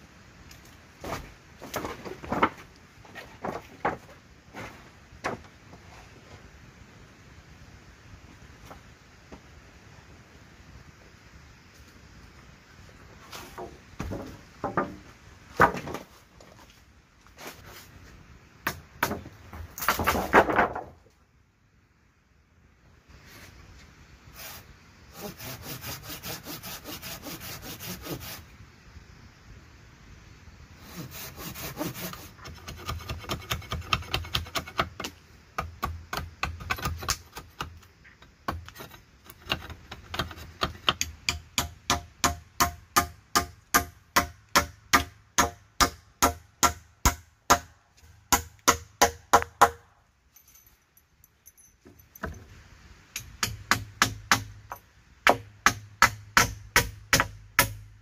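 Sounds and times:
hand saw cutting wood: 24.4s - 28.4s, 30.8s - 34.9s.

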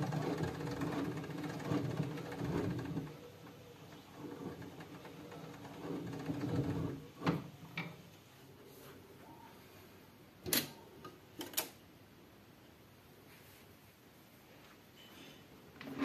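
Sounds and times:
hand-crank winding rattle: 0.0s - 3.1s.

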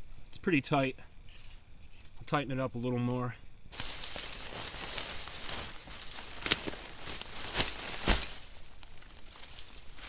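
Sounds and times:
rustling through dry leaves: 3.7s - 10.0s
sharp twig cracks: 3.8s - 10.0s.

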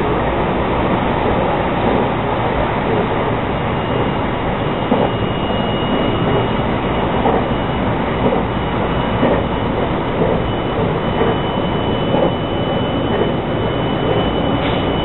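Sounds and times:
electric train rolling: 0.0s - 15.0s
faint high whine: 3.5s - 15.0s.

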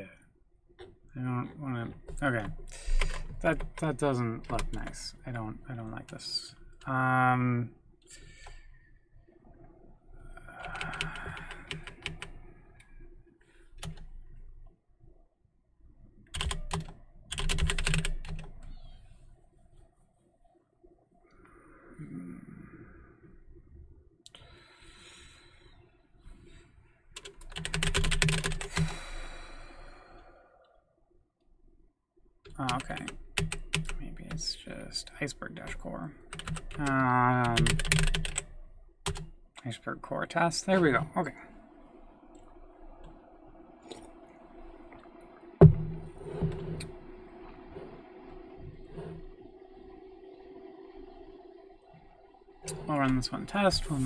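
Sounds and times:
faint steady hum: 0.0s - 54.0s
typing on keyboard: 10.6s - 12.4s, 16.3s - 18.7s, 27.2s - 29.0s, 32.5s - 34.4s, 36.3s - 39.3s.

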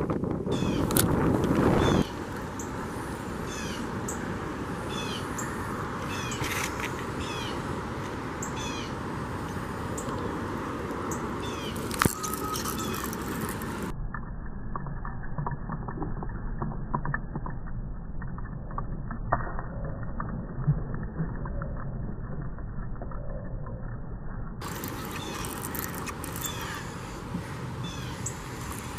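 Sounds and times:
wind buffeting microphone: 0.0s - 2.6s
birds chirping: 0.5s - 0.9s, 1.7s - 7.7s, 8.3s - 13.9s, 24.6s - 28.9s.

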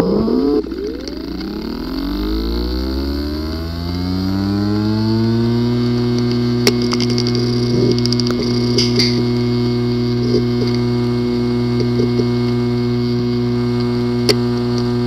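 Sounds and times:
hard drive buzz: 0.0s - 15.0s
hard drive motor whine: 0.0s - 15.0s
hard drive click: 5.8s - 15.0s.

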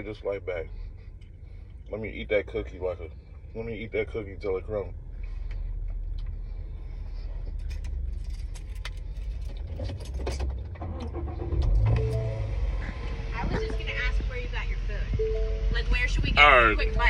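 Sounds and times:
vehicle idling: 0.0s - 17.0s
light clicks and rattles: 7.4s - 11.1s.

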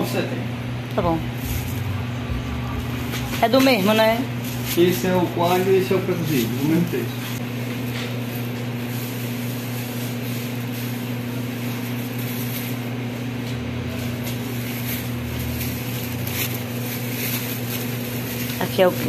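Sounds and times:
machinery electrical hum: 0.0s - 19.0s
deep rumble: 0.9s - 4.7s.

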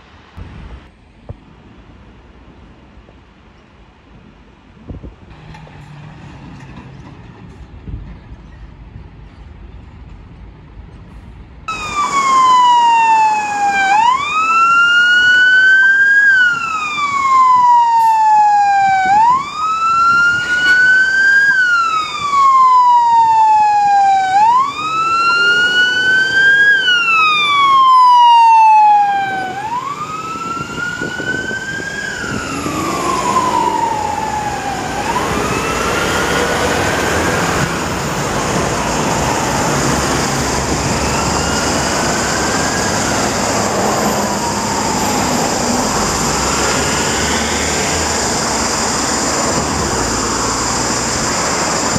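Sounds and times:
truck engine: 5.3s - 9.0s, 9.6s - 51.9s
fire truck siren wailing: 11.7s - 51.9s.

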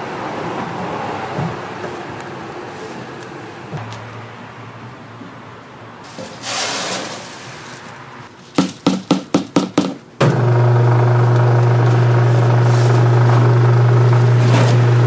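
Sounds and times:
grains pouring into hopper: 6.1s - 7.8s, 10.2s - 15.0s
plastic basket knocking on hopper: 8.6s - 10.4s
grain mill motor humming: 10.2s - 15.0s.

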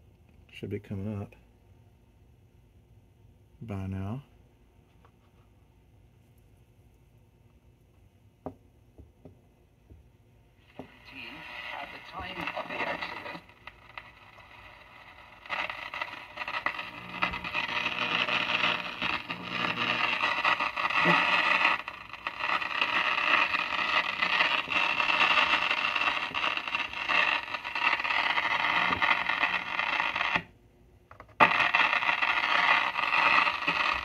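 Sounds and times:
radio hiss: 10.6s - 30.5s, 31.4s - 34.0s.

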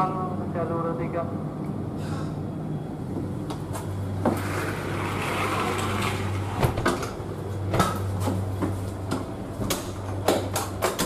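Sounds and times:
steady low hum: 0.0s - 11.0s
sharp clicks and knocks: 7.7s - 11.0s.

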